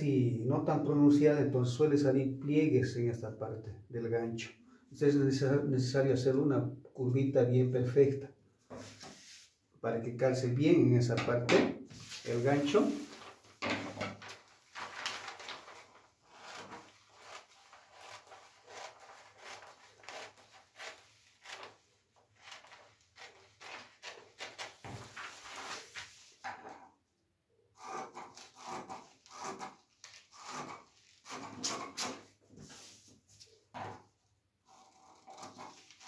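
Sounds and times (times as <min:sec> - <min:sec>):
paper rustling: 0:08.7 - 0:09.5, 0:11.9 - 0:26.8, 0:29.1 - 0:34.0, 0:35.0 - 0:36.0
scissors snipping paper: 0:16.3 - 0:21.8, 0:34.7 - 0:36.0.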